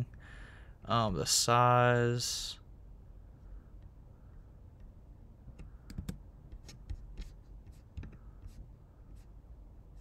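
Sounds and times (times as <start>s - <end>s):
computer mouse clicking: 4.8s - 8.6s.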